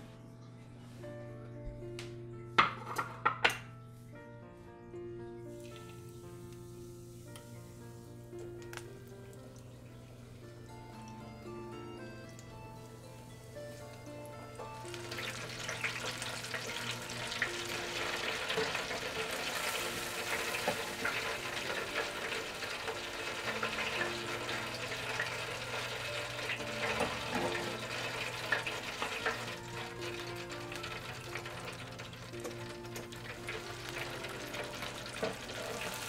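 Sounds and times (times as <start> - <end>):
background music with sustained tones: 0.0 - 36.0
chicken deep-frying in oil: 14.6 - 36.0.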